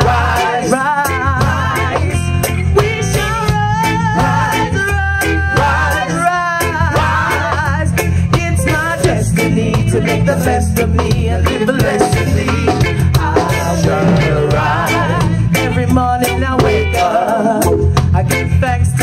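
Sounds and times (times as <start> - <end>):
reggae band playing: 0.0 - 19.0
vocalists singing together: 0.0 - 19.0.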